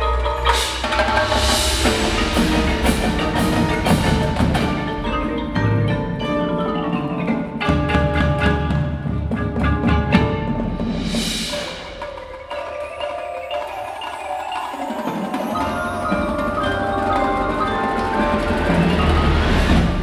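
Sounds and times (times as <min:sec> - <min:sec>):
marimbas and mallet percussion: 0:00.0 - 0:20.0
cymbal crash: 0:00.2 - 0:07.4, 0:10.6 - 0:12.6.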